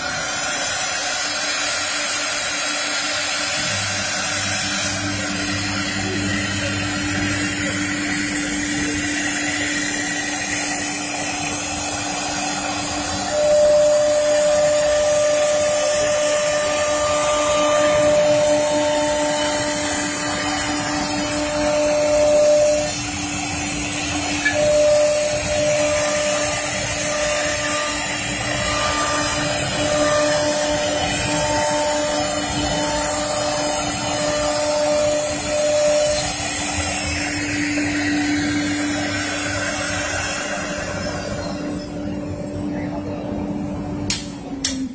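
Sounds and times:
higher machine tone: 0:00.0 - 0:44.9
router spindle whining: 0:00.0 - 0:44.9.

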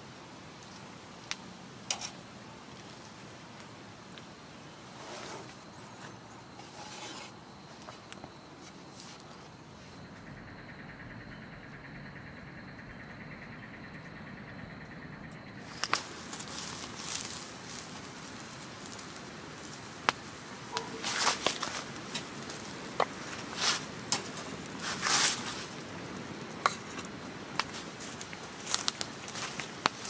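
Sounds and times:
wood fire crackling: 0:00.0 - 0:11.3, 0:15.3 - 0:30.0
sharp snaps of fire: 0:00.4 - 0:04.9, 0:15.4 - 0:30.0.

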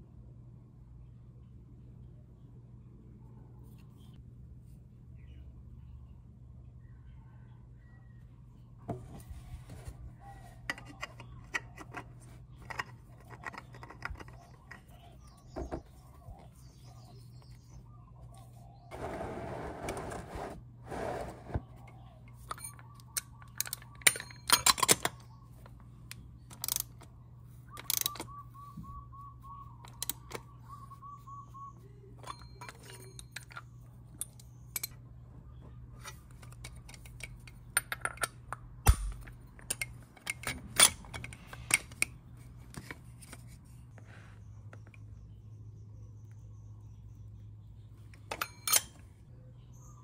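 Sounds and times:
metal clicks and knocks: 0:10.6 - 0:15.9
plastic pan scraping: 0:18.9 - 0:21.8.

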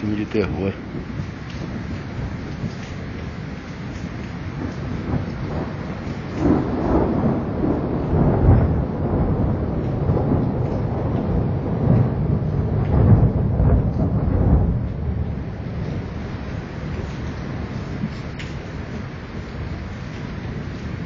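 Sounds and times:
rain falling: 0:00.0 - 0:21.0
thunder rumbling: 0:00.0 - 0:21.0.

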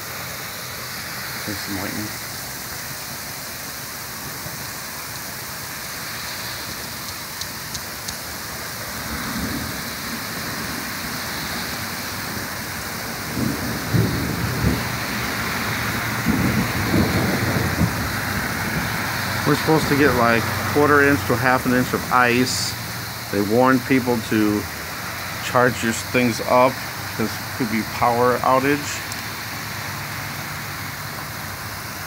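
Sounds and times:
freezing rain hissing: 0:00.0 - 0:32.0
light ice ticks: 0:07.0 - 0:08.3
thunder rumbling: 0:08.8 - 0:29.2.

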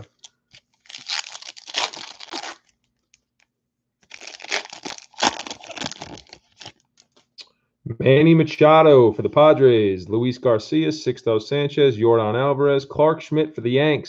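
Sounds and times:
foil wrapper crinkling and tearing: 0:00.1 - 0:03.4, 0:04.0 - 0:07.2.

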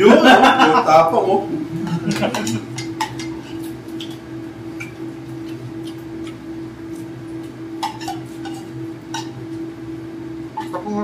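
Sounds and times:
steady low hum: 0:00.0 - 0:11.0
plates and spoons clinking: 0:01.8 - 0:04.2, 0:07.8 - 0:09.4.

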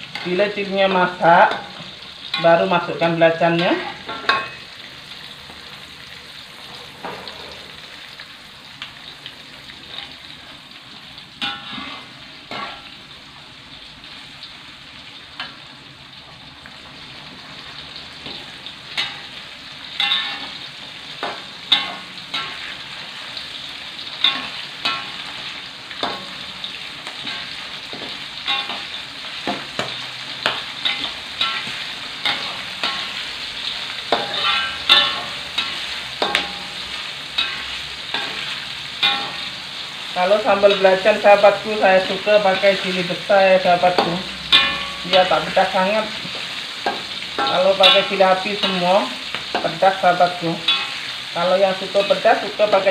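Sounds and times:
metal spatula scraping wok: 0:00.0 - 0:04.8, 0:11.4 - 0:13.0, 0:18.2 - 0:52.9
vegetables sizzling in oil: 0:00.0 - 0:52.9.

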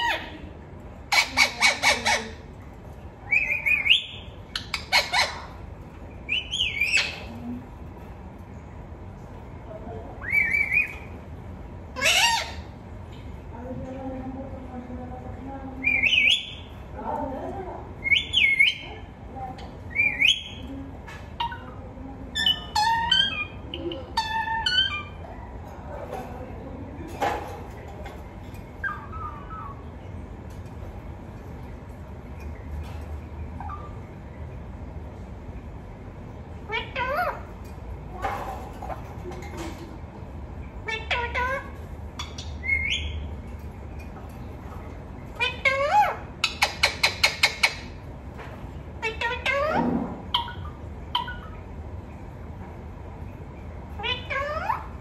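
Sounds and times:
parakeet screeching and squawking: 0:00.0 - 0:00.5, 0:01.1 - 0:02.5, 0:03.3 - 0:05.7, 0:06.3 - 0:07.4, 0:10.2 - 0:11.1, 0:11.9 - 0:12.8, 0:21.3 - 0:25.6, 0:28.8 - 0:29.9, 0:33.6 - 0:34.1, 0:36.6 - 0:37.6, 0:40.8 - 0:43.3, 0:45.3 - 0:48.0, 0:49.0 - 0:51.8, 0:53.9 - 0:55.0.

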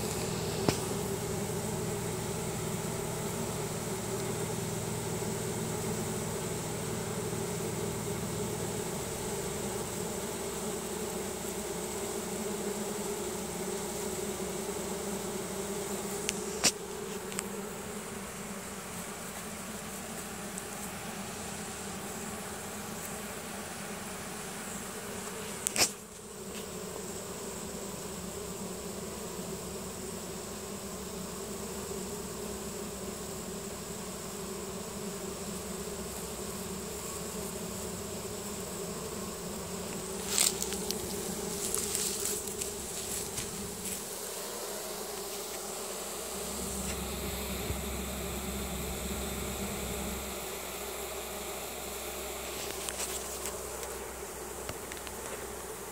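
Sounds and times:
bee swarm buzzing: 0:00.0 - 0:55.9.

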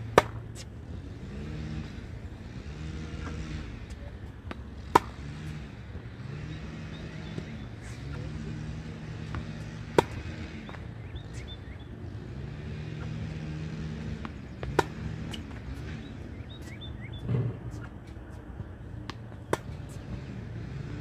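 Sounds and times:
tennis racket hitting ball: 0:00.0 - 0:00.7, 0:04.4 - 0:05.6, 0:09.1 - 0:10.9, 0:13.0 - 0:16.1, 0:19.0 - 0:20.2
birds chirping: 0:04.8 - 0:20.9.

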